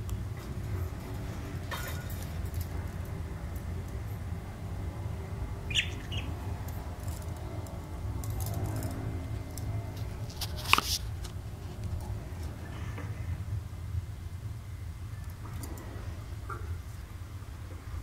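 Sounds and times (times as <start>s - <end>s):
steady low rumble: 0.0s - 18.0s
budgerigars chirping: 5.6s - 6.5s.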